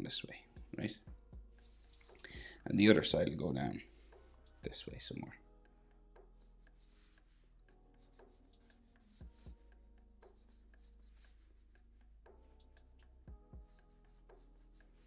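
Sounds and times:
marker scratching on paper: 1.5s - 2.2s, 3.8s - 4.8s, 6.4s - 15.0s.

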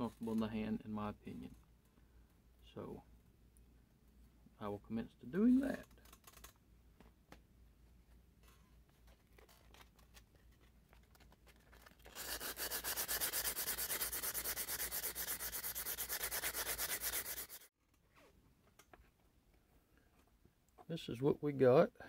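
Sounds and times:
sandpaper rubbing: 12.0s - 17.7s.

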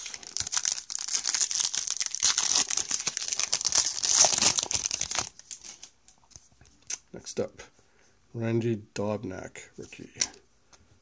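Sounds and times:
plastic wrapper crinkling: 0.0s - 6.4s.

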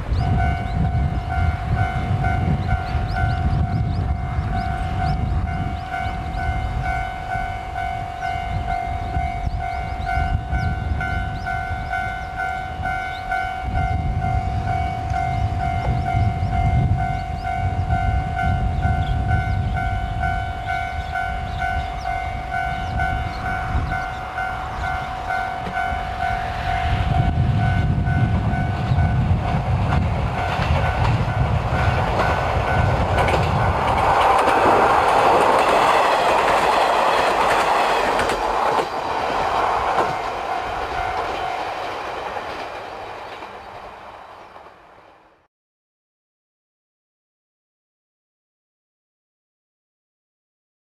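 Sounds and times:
diesel railcar passing: 0.0s - 45.5s
pulsing ringing tone: 0.2s - 29.3s.

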